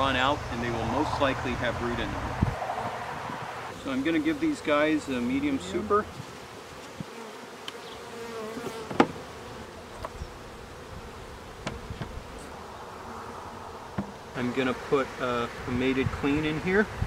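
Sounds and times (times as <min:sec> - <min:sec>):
bees buzzing: 0:00.0 - 0:17.0
wooden hive boxes knocking: 0:08.5 - 0:09.3, 0:11.6 - 0:12.2, 0:13.9 - 0:14.2.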